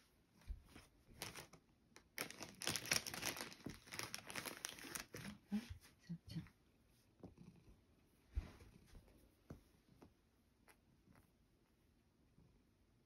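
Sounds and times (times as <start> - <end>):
packaging crinkling: 1.2 - 5.4
packaging clicks: 2.2 - 5.0.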